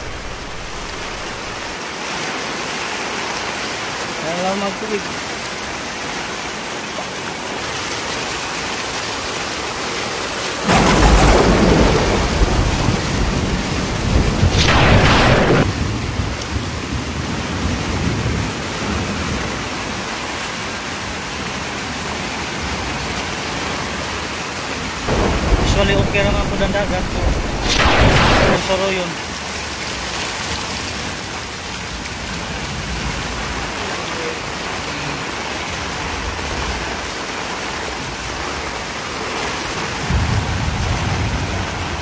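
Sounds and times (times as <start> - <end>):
thunder rumbling: 0.0 - 1.7, 10.7 - 16.8, 25.1 - 28.8
heavy rain pouring: 0.0 - 42.0.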